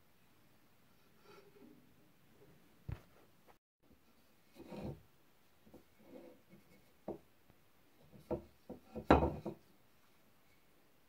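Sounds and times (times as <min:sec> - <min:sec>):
soft rubbing of wood: 0:05.6 - 0:07.2.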